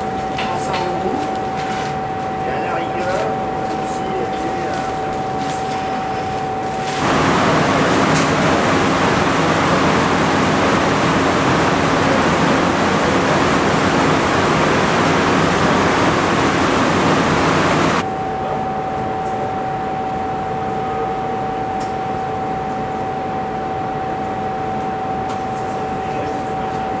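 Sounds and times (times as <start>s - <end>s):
machinery hum with held tone: 0.0s - 27.0s
ventilation hiss: 6.4s - 18.0s.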